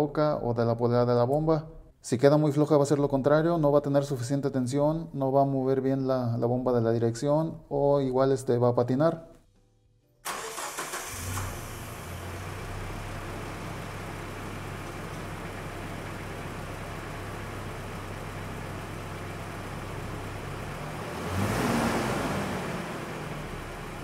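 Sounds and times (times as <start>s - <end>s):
car engine idling: 10.3s - 24.0s.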